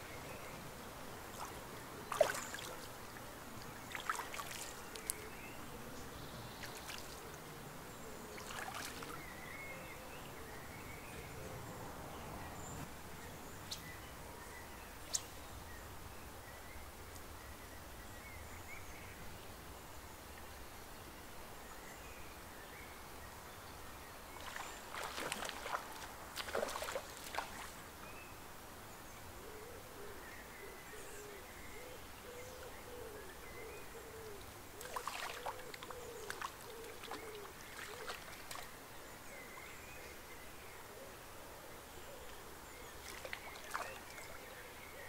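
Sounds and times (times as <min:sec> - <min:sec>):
faint steady hiss: 0:00.0 - 0:45.0
splashing in shallow water: 0:01.2 - 0:05.4, 0:06.6 - 0:07.4, 0:08.3 - 0:09.5, 0:24.4 - 0:27.9, 0:34.8 - 0:38.8, 0:42.9 - 0:44.5.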